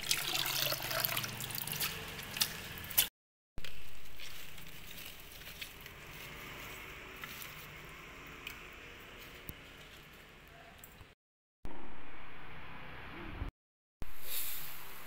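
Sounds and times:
wet lettuce squishing and rustling: 1.4 - 8.6.

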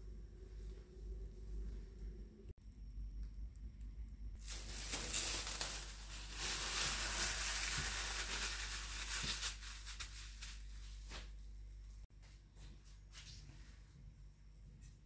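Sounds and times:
plastic cling film crinkling: 4.4 - 11.3.

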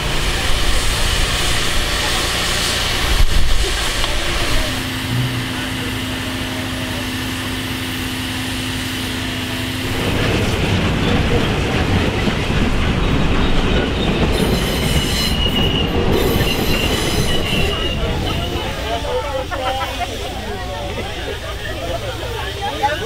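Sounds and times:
train rolling past: 0.0 - 23.0
high wheel squeal: 13.0 - 19.3.

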